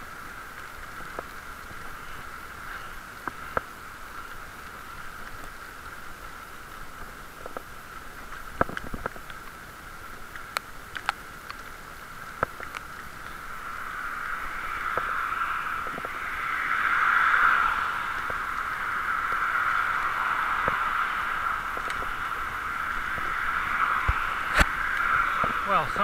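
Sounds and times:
bicycle rolling on wet bricks: 0.0 - 26.0
sharp clicks and ticks: 10.3 - 11.7.

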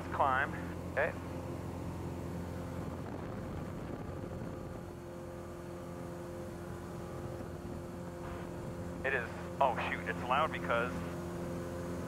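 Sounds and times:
airplane engine and propeller droning: 0.0 - 12.0.

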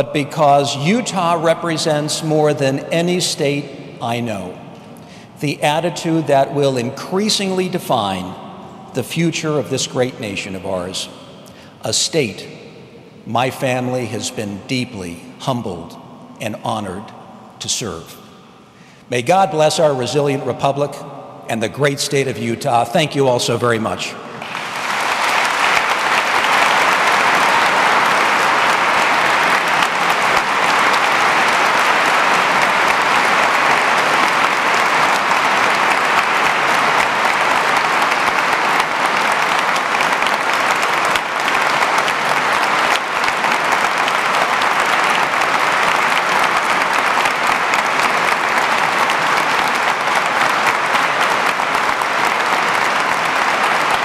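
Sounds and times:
audience applauding: 24.4 - 54.0.

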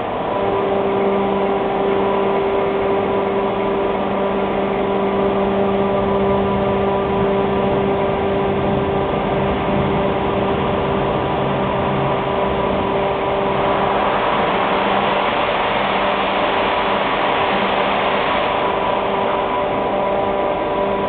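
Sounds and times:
cutting machine humming: 0.0 - 21.0
loud hiss: 13.5 - 19.9.

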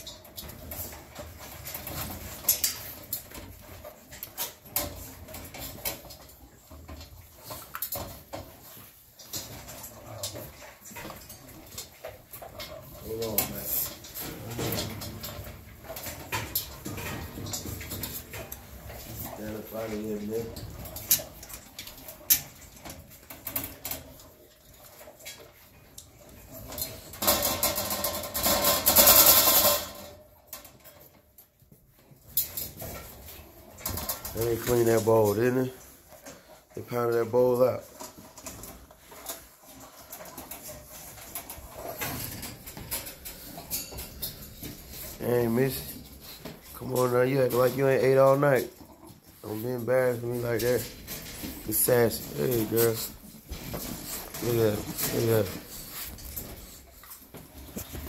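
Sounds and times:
puppy crunching dry kibble: 0.0 - 58.0
metal pan rattling on wire: 26.6 - 30.2.

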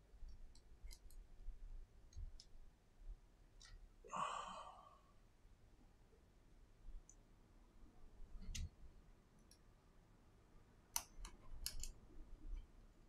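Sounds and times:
light clicks of small repair tools: 0.2 - 1.2, 10.9 - 12.7.

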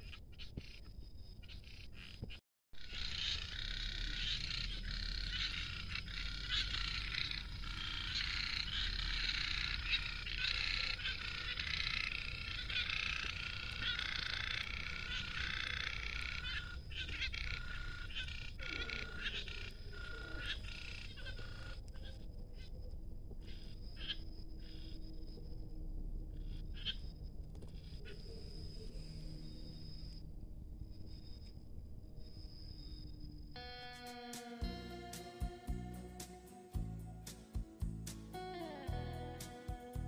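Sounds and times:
chorus of frogs calling: 1.4 - 22.8, 23.4 - 25.0, 26.4 - 29.8.

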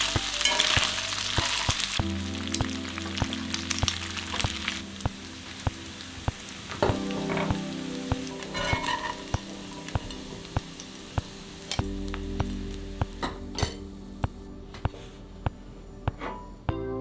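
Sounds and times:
bacon sizzling in a skillet: 0.0 - 12.8
soft background music: 0.0 - 17.0.

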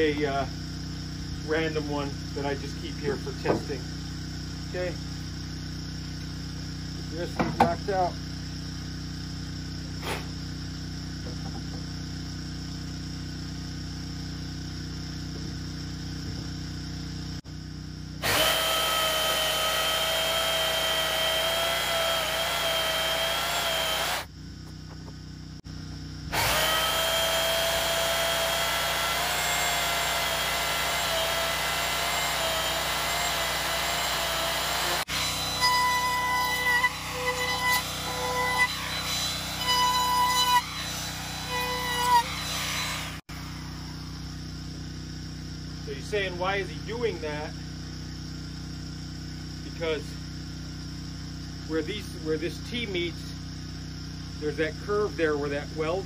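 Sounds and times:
electric wood router whining: 18.2 - 24.3, 26.3 - 43.3.

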